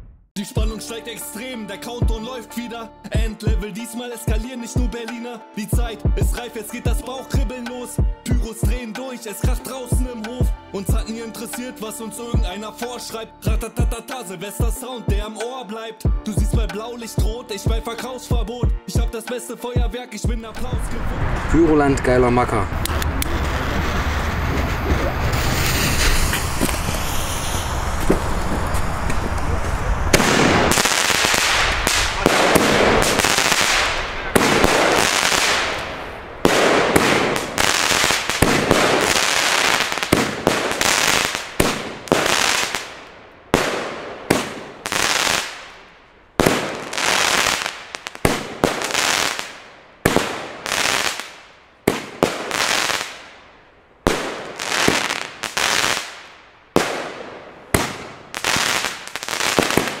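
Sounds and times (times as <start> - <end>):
firework battery bangs and crackle: 22.8 - 45.8, 46.4 - 53.3, 54.0 - 60.0.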